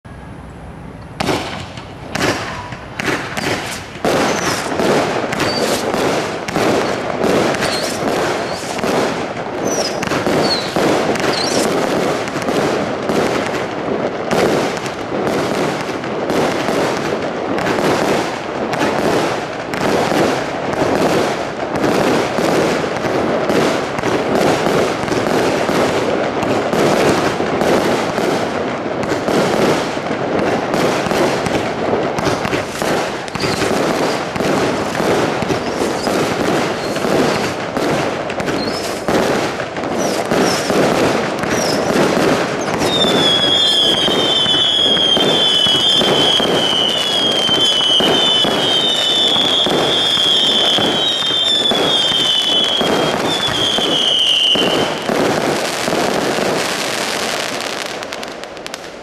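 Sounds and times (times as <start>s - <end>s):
firework barrage thumps and bursts: 1.2s - 59.0s
high whistling tone: 9.6s - 11.7s.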